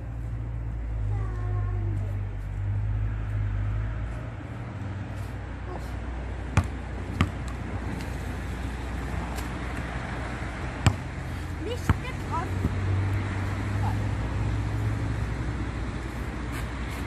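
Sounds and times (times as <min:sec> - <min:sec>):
low outdoor hum: 0:00.0 - 0:17.0
basketball bouncing on court: 0:06.5 - 0:07.6, 0:10.8 - 0:11.1, 0:11.7 - 0:12.8.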